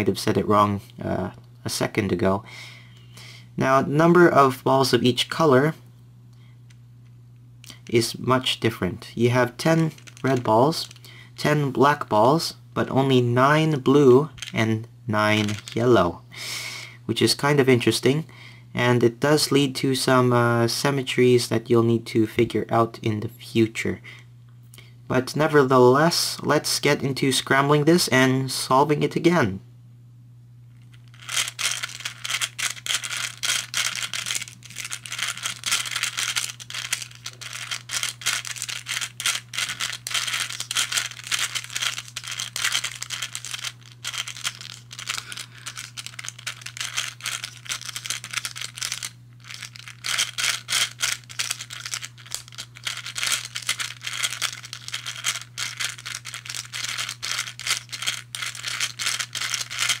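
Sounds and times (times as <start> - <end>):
puzzle balls rattling and clicking: 9.3 - 11.7, 14.2 - 14.7, 15.3 - 15.9, 30.9 - 60.0.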